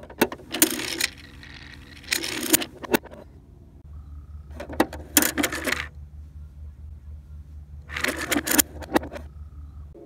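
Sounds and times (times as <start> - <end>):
plastic toy clicking and clattering: 0.0 - 3.2, 4.6 - 5.9, 7.9 - 9.2.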